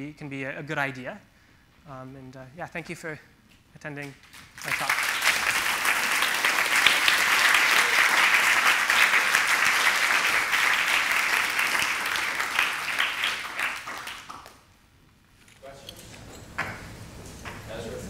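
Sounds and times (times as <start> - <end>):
audience applauding: 4.5 - 14.6.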